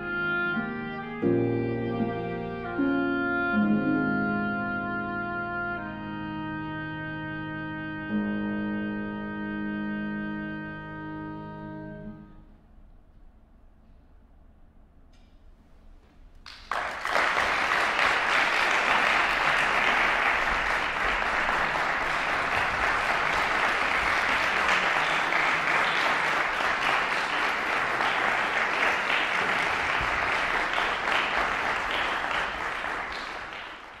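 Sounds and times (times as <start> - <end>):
audience applauding: 16.4 - 34.0.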